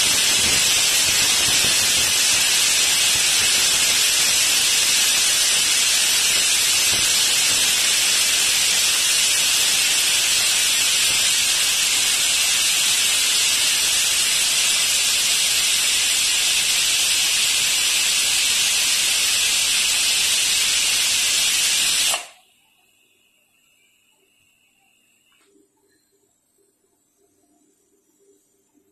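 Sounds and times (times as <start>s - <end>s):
pressure cooker venting steam: 0.0s - 22.4s.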